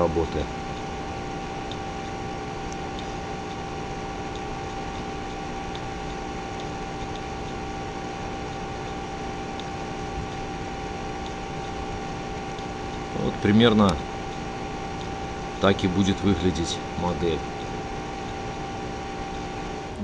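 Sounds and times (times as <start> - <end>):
background hum and hiss: 0.0 - 20.0
constant whine: 0.0 - 20.0
faint ticks: 0.7 - 16.5.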